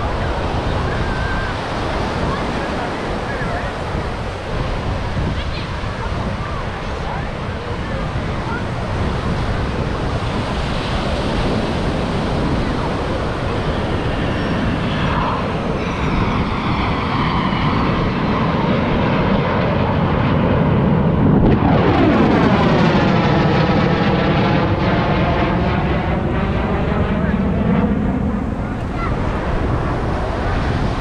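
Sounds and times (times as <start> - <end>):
jet aircraft flying overhead: 0.0 - 31.0.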